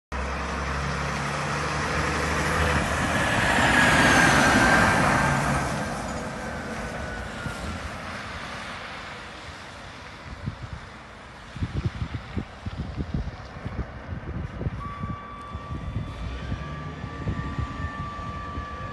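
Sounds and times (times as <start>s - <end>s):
garbage truck driving past: 0.2s - 9.4s, 14.8s - 18.9s
high whistle dropping in pitch: 14.8s - 18.9s.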